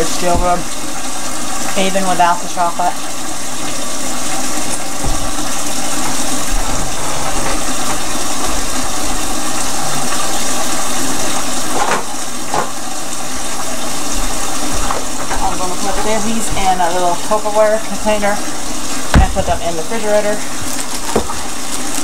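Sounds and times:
water running from tap: 0.0 - 22.0
short knocks: 4.9 - 5.6.

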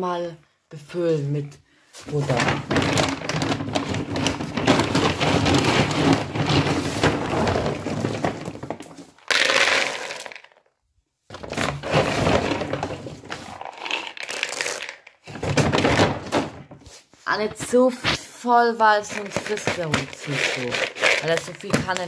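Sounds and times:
dry kibble poured into plastic bowl: 9.2 - 10.6, 13.4 - 15.0, 19.4 - 22.0.

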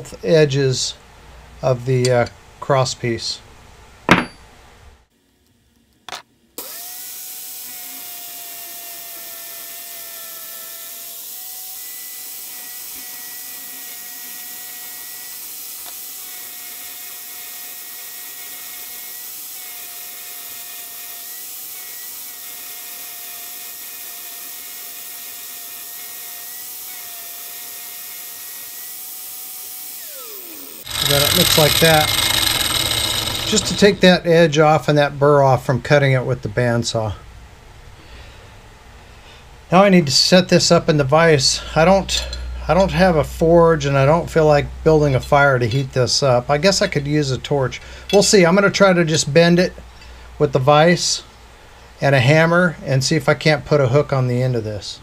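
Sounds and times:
angle grinder grinding steel: 6.6 - 34.3.

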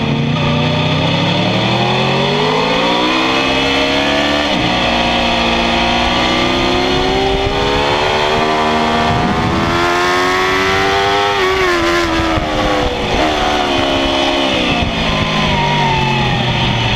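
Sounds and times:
motorcycle engine revving: 0.0 - 16.9.

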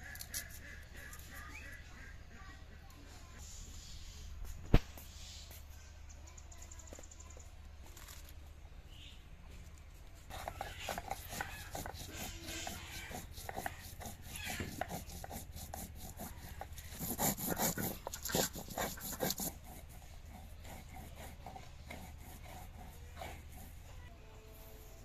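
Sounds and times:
stone grinding on stone: 10.3 - 23.8.

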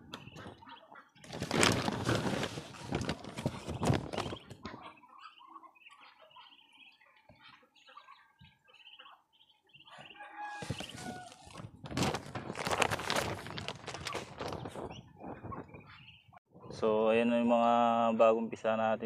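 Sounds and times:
ducklings peeping: 0.0 - 1.8, 2.8 - 11.7, 13.6 - 16.4
feed sack rustling: 1.2 - 4.4, 10.5 - 14.8.

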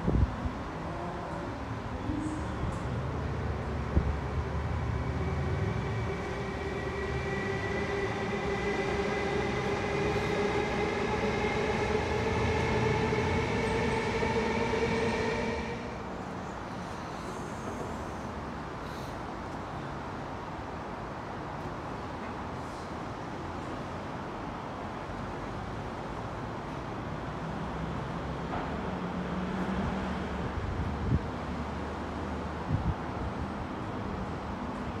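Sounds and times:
train rumble: 0.0 - 20.3.

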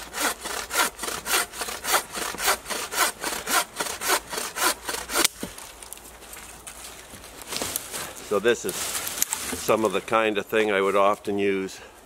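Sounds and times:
bow saw rasping through branch: 0.0 - 5.5
branch cracking: 5.2 - 10.1.

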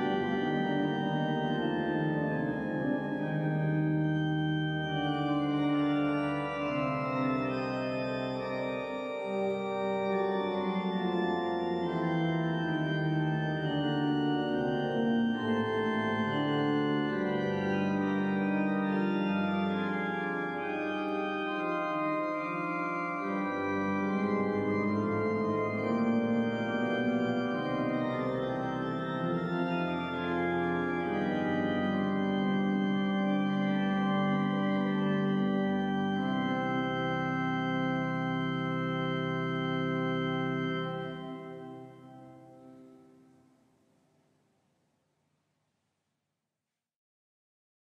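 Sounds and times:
organ playing slow chords: 0.0 - 43.4.

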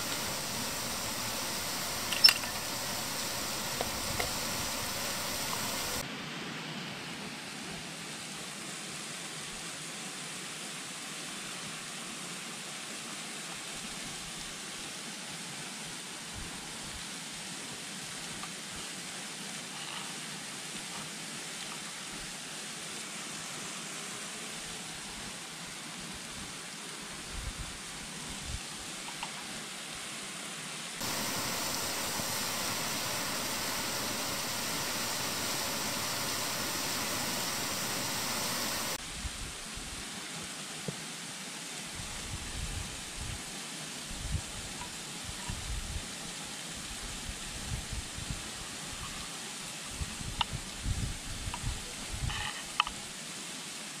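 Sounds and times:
river water flowing: 0.0 - 6.0, 31.0 - 39.0
loud steady hiss: 0.0 - 54.0
faint clicks: 1.9 - 6.0.

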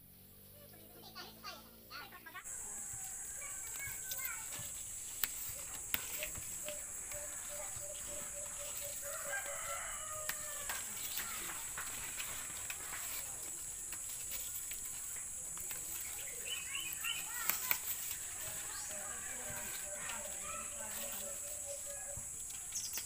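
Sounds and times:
leaves rustling: 2.0 - 23.0
rooster crowing: 2.5 - 4.6, 6.6 - 11.5
steady high hiss: 2.5 - 23.0.

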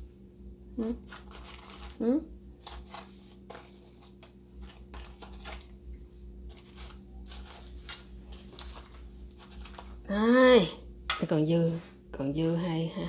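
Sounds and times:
steady low hum: 0.0 - 13.0
paper rustles and crinkles: 1.0 - 5.8, 6.5 - 10.1.

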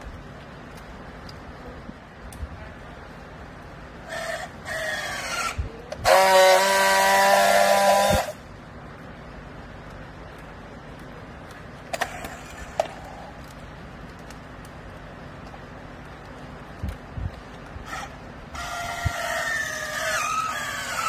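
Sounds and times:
strapping tool motor whirring: 4.1 - 8.4
strapping tool buzzing: 4.7 - 8.4.

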